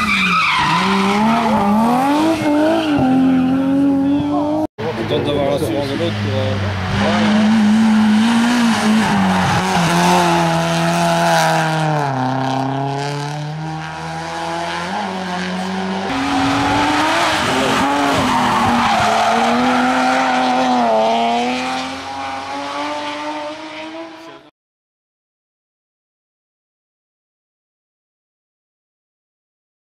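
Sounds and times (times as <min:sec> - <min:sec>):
car engine rising and falling: 0:00.0 - 0:24.5
hatchback engine revving: 0:05.8 - 0:24.4.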